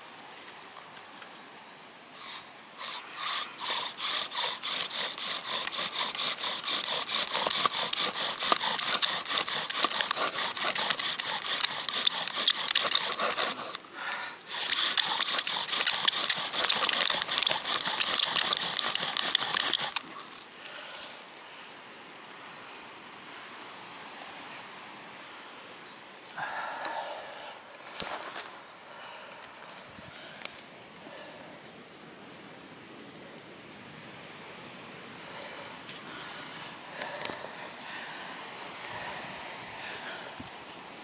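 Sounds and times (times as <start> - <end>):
bow drill friction strokes: 2.2 - 13.9, 14.5 - 20.4.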